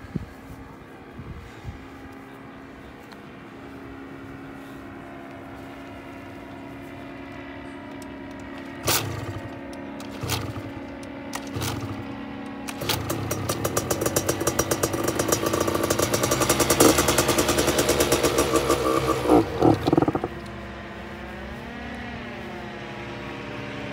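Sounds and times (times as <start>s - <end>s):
engine running: 0.0s - 23.9s
steady engine hum: 0.0s - 23.9s
pull-start knocks: 8.0s - 20.5s.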